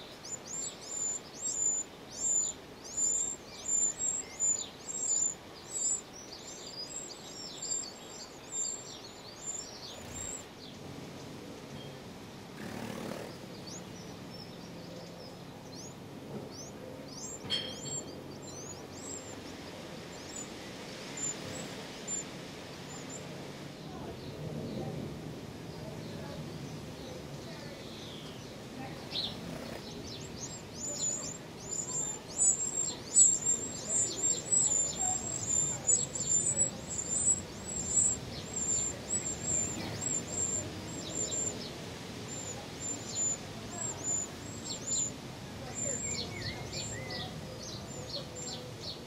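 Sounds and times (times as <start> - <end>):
low background hiss: 0.0 - 49.0
nestlings begging chirps: 0.0 - 49.0.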